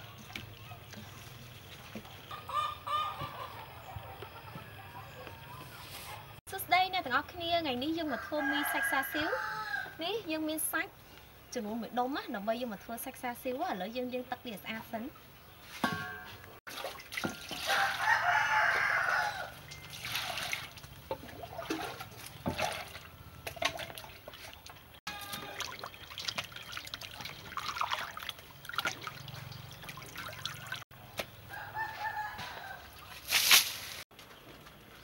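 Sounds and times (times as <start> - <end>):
rooster crowing: 8.1 - 10.0, 17.6 - 19.6, 31.5 - 33.0
water splashing as meat is washed: 16.7 - 19.0, 19.7 - 30.8
water poured into steel bowl: 25.3 - 30.8.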